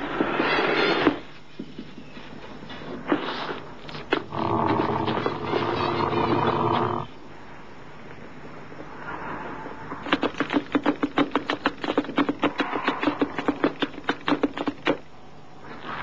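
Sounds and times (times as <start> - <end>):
rapid sharp clicks: 10.0 - 15.1.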